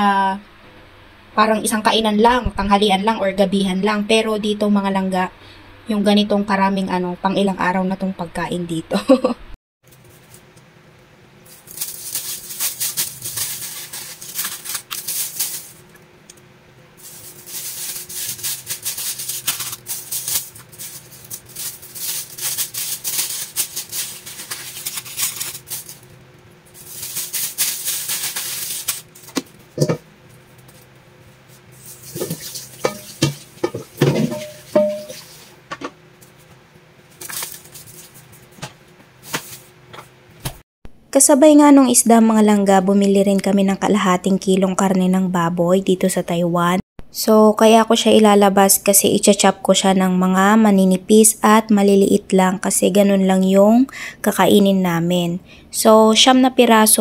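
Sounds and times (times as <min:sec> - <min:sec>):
plastic bags crinkling: 0:11.5 - 0:16.0, 0:17.0 - 0:26.1, 0:26.7 - 0:30.0, 0:37.2 - 0:38.5.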